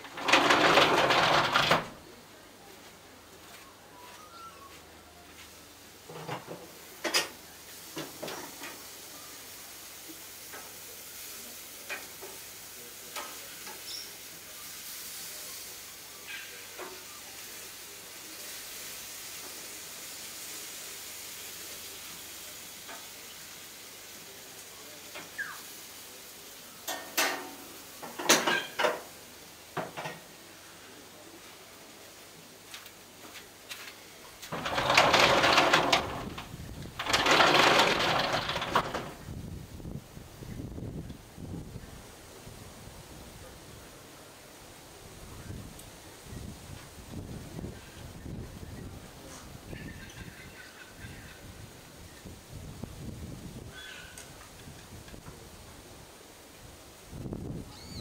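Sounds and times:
steady hiss: 0:04.8 - 0:58.0
lorikeets making sharp sounds: 0:57.7 - 0:58.0.

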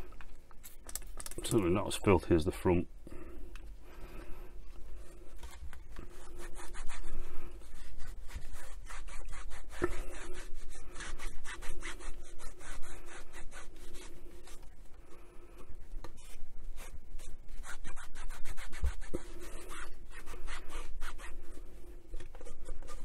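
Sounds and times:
cloth wiping textured case: 0:05.3 - 0:14.7, 0:16.1 - 0:23.0.

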